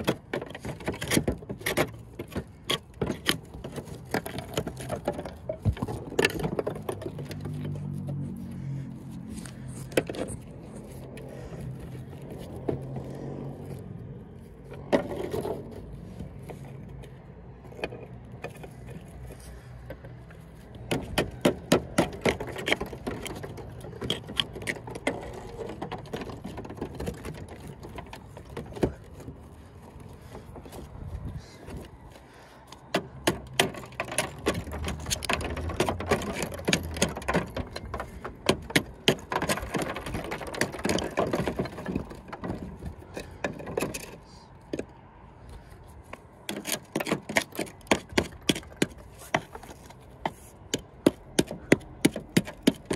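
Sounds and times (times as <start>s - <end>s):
chisel chipping mortar: 46.5s - 52.9s.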